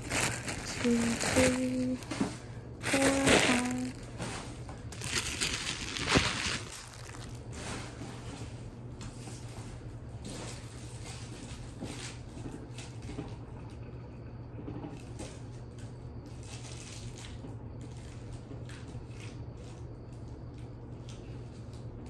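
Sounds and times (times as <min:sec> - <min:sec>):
plastic bags crinkling: 0:00.0 - 0:08.0
low electrical hum: 0:00.0 - 0:22.0.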